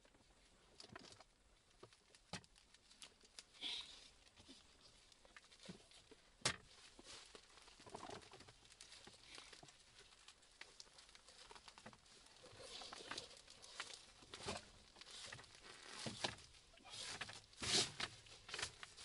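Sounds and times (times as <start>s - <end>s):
folding table clicks and rustles: 12.6s - 19.0s.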